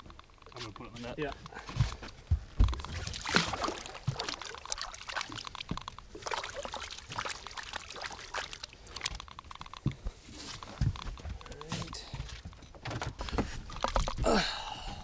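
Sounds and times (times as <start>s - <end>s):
water splashing and trickling: 2.7s - 10.5s, 13.2s - 15.0s.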